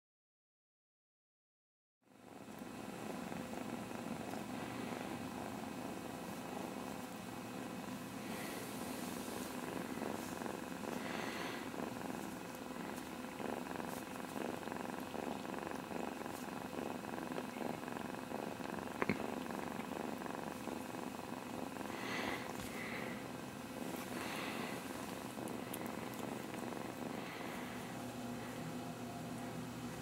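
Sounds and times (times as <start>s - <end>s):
kitten purring: 2.1s - 30.0s.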